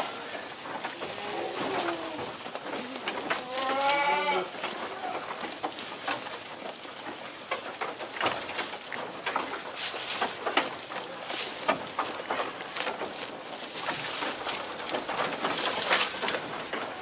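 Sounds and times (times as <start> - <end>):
goats chewing leafy branches: 0.0 - 17.0
goat bleating: 1.0 - 5.3.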